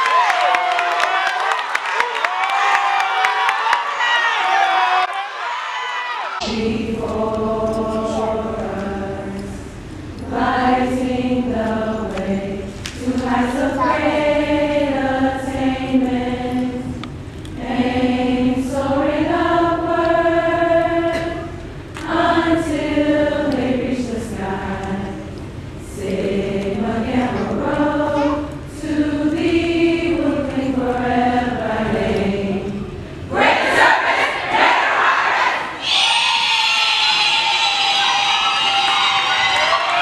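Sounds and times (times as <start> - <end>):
crowd cheering and shouting: 0.0 - 6.4, 35.6 - 40.0
group of voices singing: 6.4 - 35.8.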